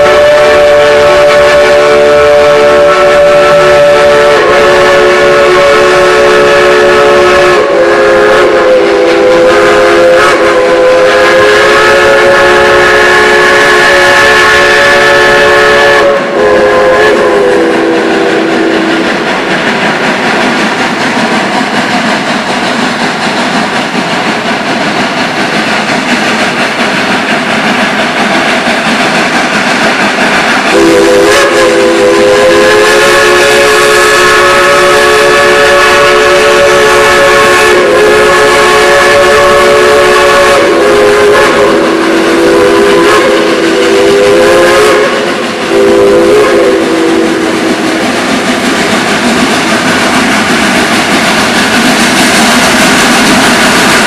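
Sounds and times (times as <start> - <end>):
steam whistle chord: 0.0 - 19.4, 30.6 - 48.2
steam locomotive rushing noise: 0.0 - 54.0.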